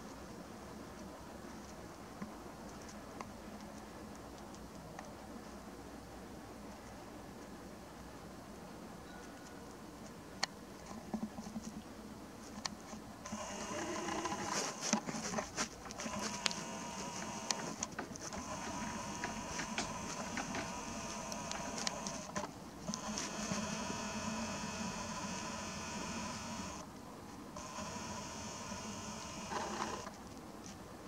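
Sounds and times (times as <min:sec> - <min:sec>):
camera lens motor whirring: 0:13.2 - 0:26.8, 0:27.6 - 0:30.1
camera clicks: 0:15.9 - 0:26.8.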